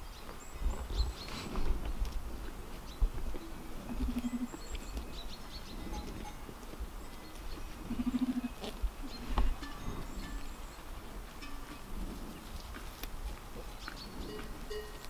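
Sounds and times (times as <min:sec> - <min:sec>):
sheep bells clinking: 0:04.2 - 0:15.0.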